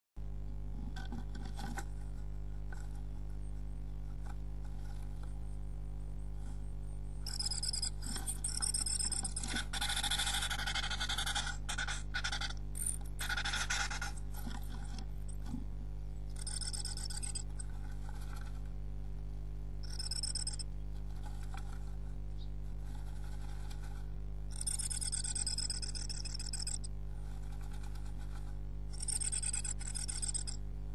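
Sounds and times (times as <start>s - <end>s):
steady low hum: 0.2s - 30.9s
bird scratching nesting material: 8.0s - 15.0s, 16.4s - 18.7s, 21.1s - 30.5s.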